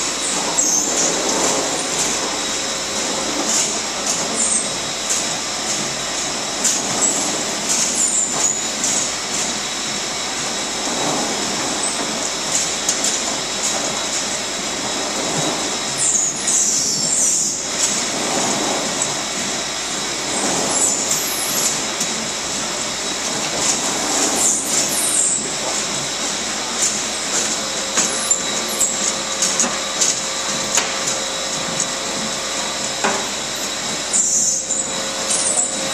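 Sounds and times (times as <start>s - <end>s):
grape-handling machinery noise: 0.0s - 35.9s.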